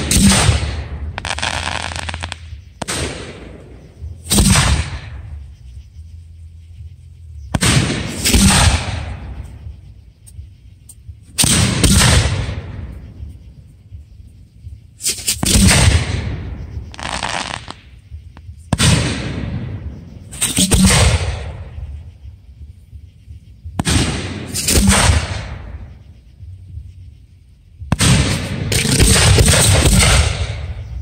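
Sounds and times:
fireworks crackle: 0:00.0 - 0:03.6, 0:16.8 - 0:18.0
fireworks shells bursting: 0:00.0 - 0:05.3, 0:15.0 - 0:18.0.

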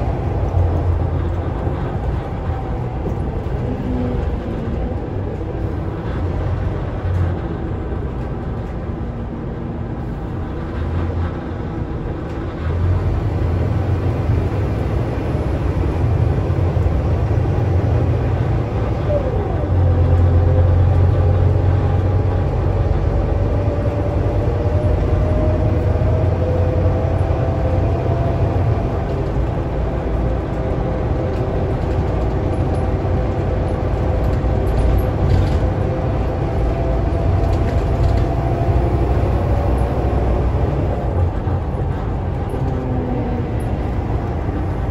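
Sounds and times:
bus engine rumble: 0:00.0 - 0:44.9.

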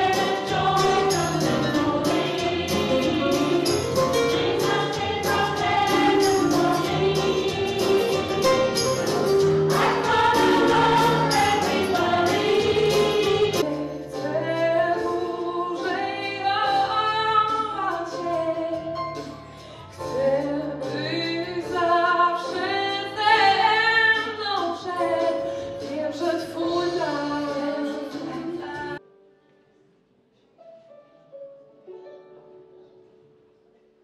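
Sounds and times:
women's choir singing: 0:00.0 - 0:16.9.

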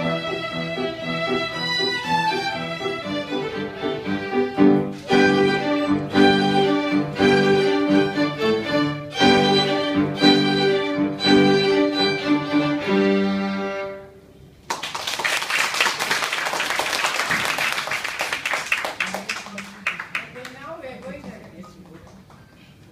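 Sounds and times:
violin ensemble playing: 0:00.0 - 0:14.3
audience applause: 0:14.6 - 0:21.5.

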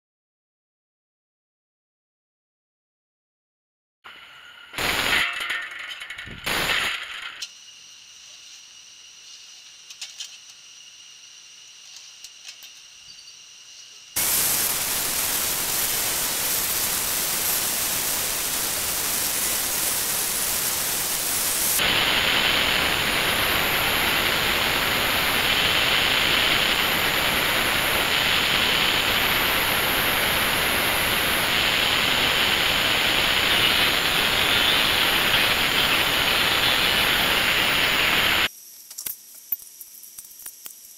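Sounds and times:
angle grinder cutting steel: 0:14.2 - 0:38.5.

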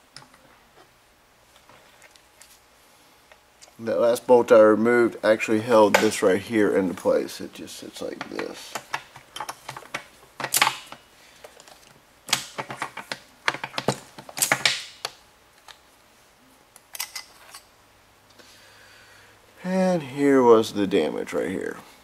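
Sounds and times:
small metal parts clinking: 0:16.9 - 0:17.7.

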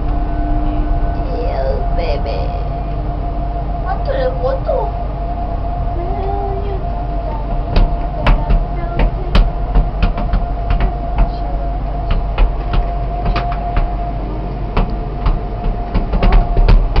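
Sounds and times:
faint steady hum: 0:00.0 - 0:17.0
ferris wheel rumbling: 0:00.0 - 0:17.0
sharp clicks and knocks: 0:07.5 - 0:11.4, 0:12.0 - 0:14.0, 0:14.8 - 0:17.0.

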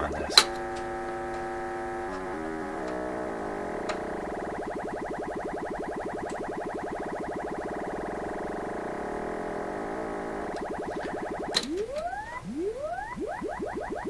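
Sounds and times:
buzzy test tone from radio speaker: 0:00.0 - 0:14.0.

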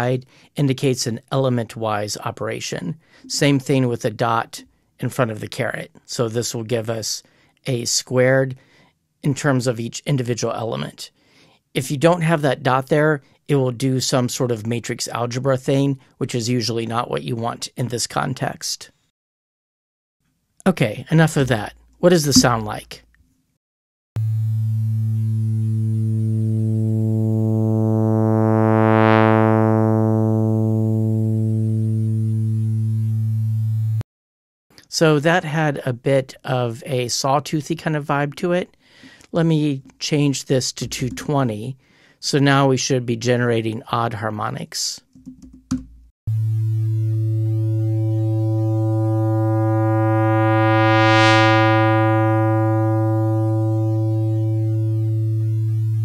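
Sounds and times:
buzzy synthesized tone: 0:22.3 - 0:22.8, 0:24.2 - 0:34.0, 0:46.3 - 0:56.0.

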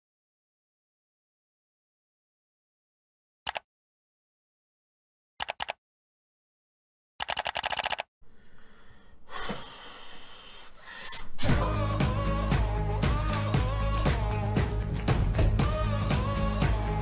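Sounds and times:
breathy exhale: 0:08.2 - 0:11.5
music: 0:11.4 - 0:17.0.

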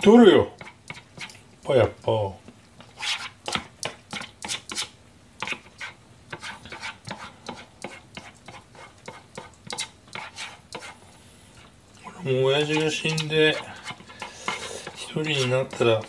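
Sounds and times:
metal spoon scraping plastic tub: 0:12.5 - 0:16.0.

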